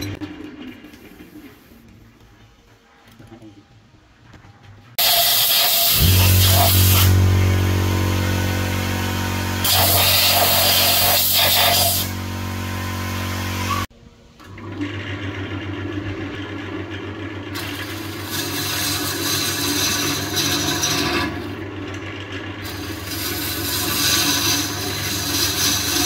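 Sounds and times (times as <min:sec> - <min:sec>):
hiss: 0:05.0 - 0:07.1, 0:09.6 - 0:12.1
lathe motor humming: 0:05.9 - 0:13.9
tool scraping wood: 0:17.8 - 0:21.5, 0:22.6 - 0:26.0.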